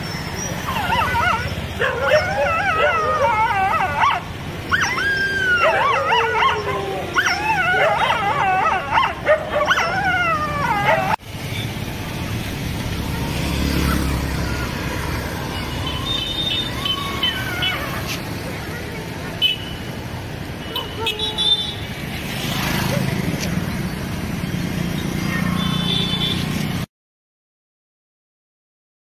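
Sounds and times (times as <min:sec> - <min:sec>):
street traffic: 0:00.0 - 0:26.9
dogs howling and whining: 0:00.4 - 0:11.2
vehicle rumbling past: 0:06.6 - 0:19.2.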